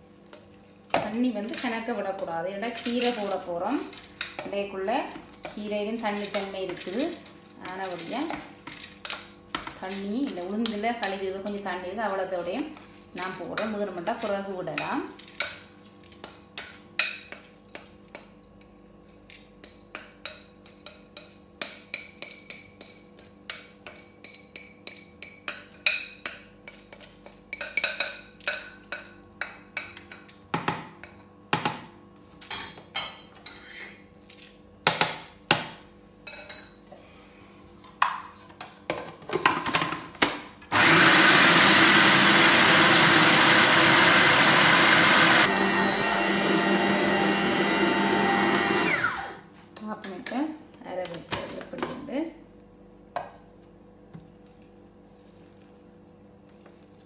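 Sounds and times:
food processor motor whirring: 0:40.7 - 0:49.4.

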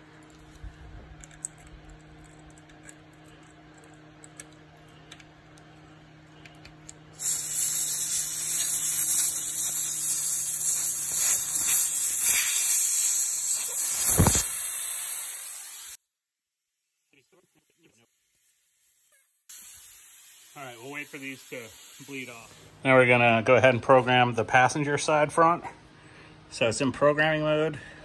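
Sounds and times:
air hissing out of tyre valve: 0:07.2 - 0:16.0, 0:19.5 - 0:22.8.

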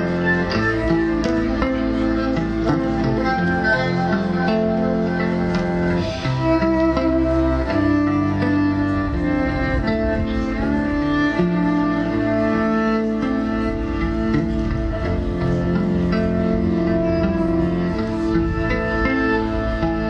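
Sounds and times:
bowed electric cello melody: 0:00.0 - 0:20.0
looped bass line: 0:00.0 - 0:20.0.

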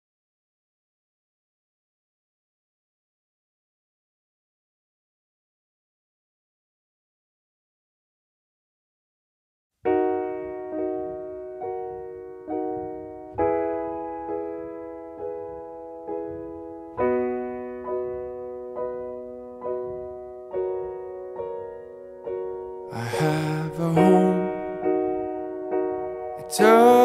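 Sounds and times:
slow piano chords: 0:09.8 - 0:27.0.

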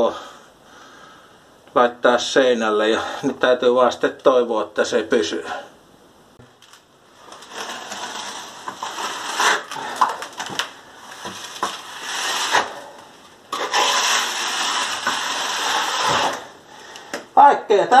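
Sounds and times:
mortar scraping on a wall: 0:07.2 - 0:16.6.

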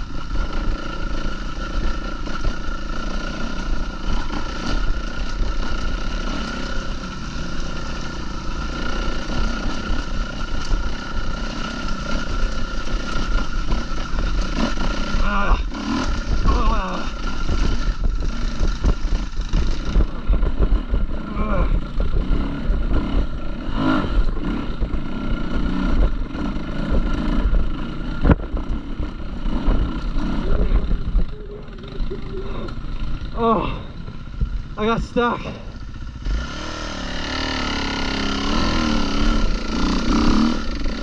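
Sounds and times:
wind rumble on microphone: 0:15.4 - 0:34.8.

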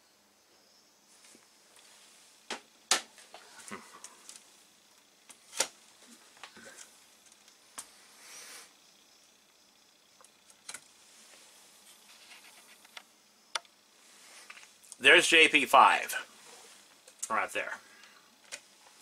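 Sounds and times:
soft rustle: 0:01.0 - 0:02.5, 0:03.1 - 0:08.8, 0:10.3 - 0:13.0, 0:13.9 - 0:15.0, 0:16.2 - 0:17.2.

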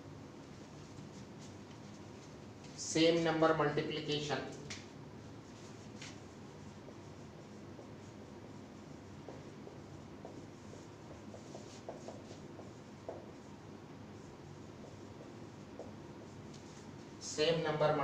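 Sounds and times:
room hiss: 0:00.0 - 0:18.0
marker scratching on whiteboard: 0:05.2 - 0:17.9.

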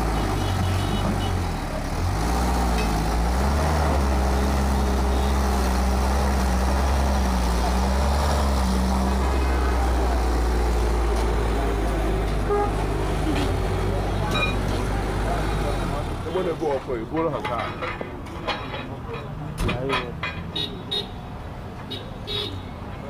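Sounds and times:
truck engine drone: 0:00.0 - 0:20.6.

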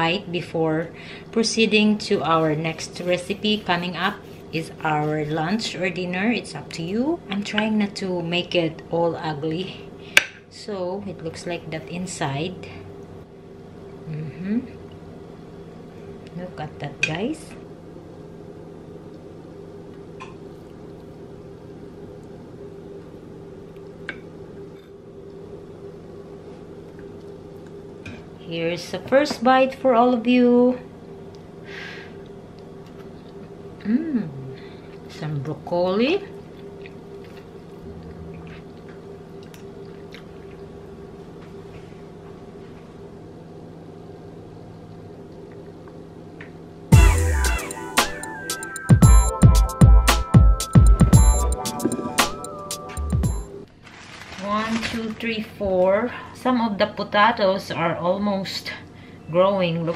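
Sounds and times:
low hum with fixed tones: 0:00.0 - 0:48.0, 0:51.0 - 0:59.9
chewing: 0:32.2 - 0:33.6, 0:36.3 - 0:40.7.

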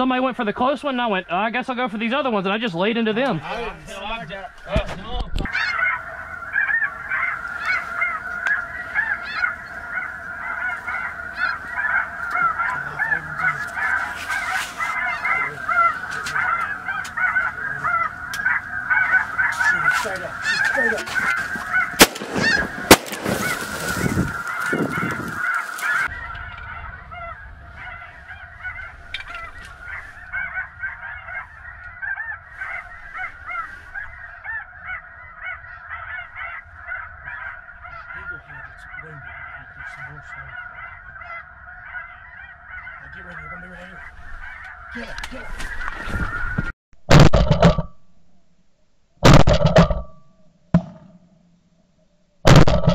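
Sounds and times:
geese honking: 0:00.0 - 0:47.8
shotgun shot: 0:22.0 - 0:23.5, 0:47.1 - 0:47.8, 0:49.2 - 0:50.0, 0:52.5 - 0:52.9.

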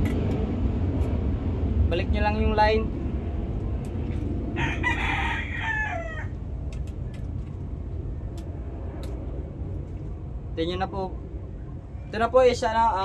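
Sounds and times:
steady low rumble: 0:00.0 - 0:13.0
rooster crowing: 0:04.5 - 0:06.4.

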